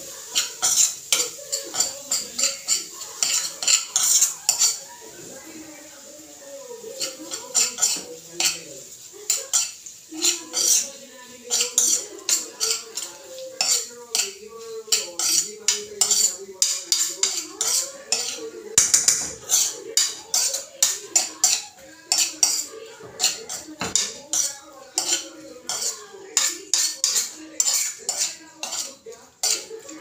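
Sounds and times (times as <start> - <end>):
utensil scraping a frying pan: 0.0 - 5.7, 6.8 - 30.0.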